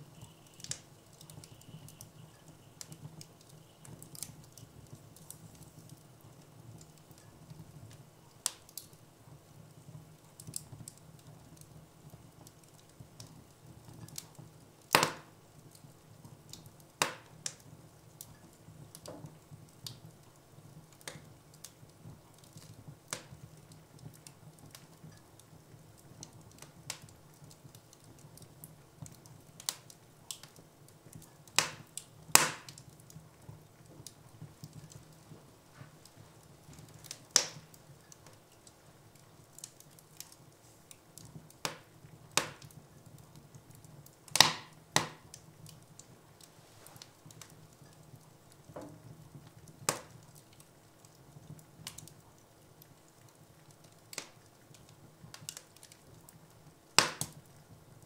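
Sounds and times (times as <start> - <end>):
logs crackling in fireplace: 0.0 - 58.0
sharp fire pops: 0.1 - 6.1, 14.0 - 15.4, 16.6 - 17.6, 31.2 - 38.8, 39.5 - 42.8, 43.5 - 46.0, 48.7 - 50.7, 56.9 - 57.5.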